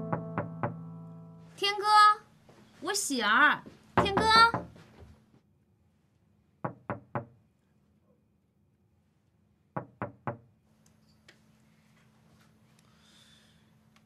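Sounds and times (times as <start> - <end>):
knocking on a door: 0.1 - 0.8, 4.0 - 5.1, 6.6 - 7.4, 9.8 - 10.5.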